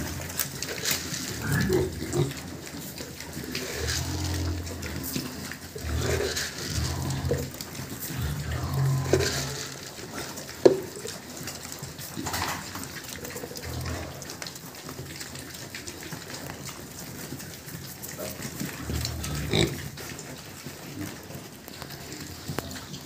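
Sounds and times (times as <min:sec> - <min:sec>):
pigs grunting and snuffling: 0:00.0 - 0:23.0
pig squealing: 0:01.3 - 0:02.5, 0:03.5 - 0:05.2, 0:05.8 - 0:09.9.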